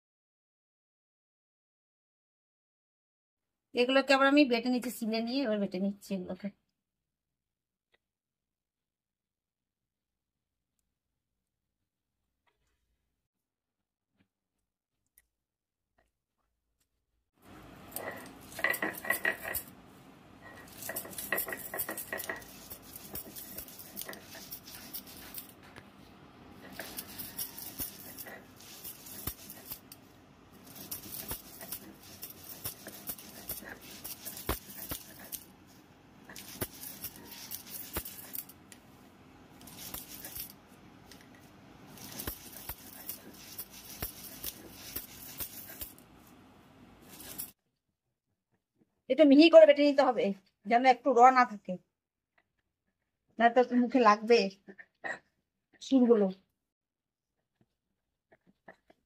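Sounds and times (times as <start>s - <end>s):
stone roller grinding shells: 17.6s - 19.8s, 20.4s - 25.8s, 26.6s - 35.6s, 36.3s - 38.7s, 39.6s - 40.5s, 41.8s - 46.0s
bangles clinking: 17.8s - 19.8s, 20.4s - 25.6s, 26.6s - 35.6s, 36.3s - 38.6s, 39.6s - 40.6s, 41.8s - 46.1s, 47.0s - 47.6s.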